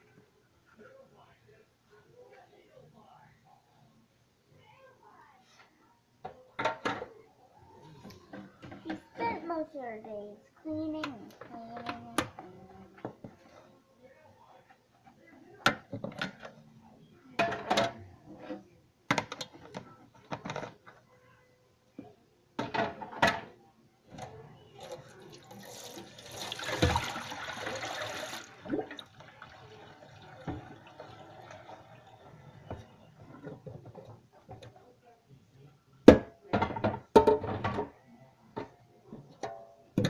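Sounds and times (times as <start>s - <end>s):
plastic containers clattering in sink: 25.6s - 34.7s
tap running: 25.7s - 31.8s.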